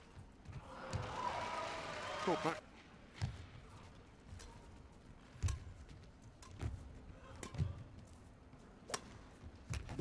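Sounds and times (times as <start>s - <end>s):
low hall background: 0.0s - 10.0s
rackets hitting shuttlecock: 5.3s - 7.8s, 8.9s - 9.9s.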